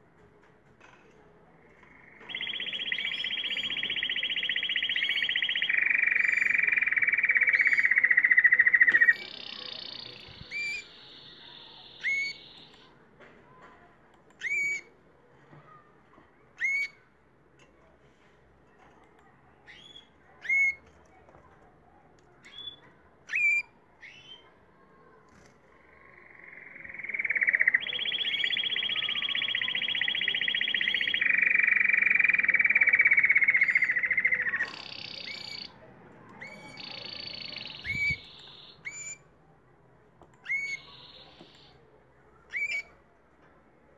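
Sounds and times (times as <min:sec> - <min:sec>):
canary trilling: 0:01.8 - 0:12.9, 0:14.4 - 0:14.9, 0:16.6 - 0:17.0, 0:19.7 - 0:20.9, 0:22.4 - 0:24.4, 0:25.8 - 0:39.3, 0:40.4 - 0:41.8, 0:42.5 - 0:43.0.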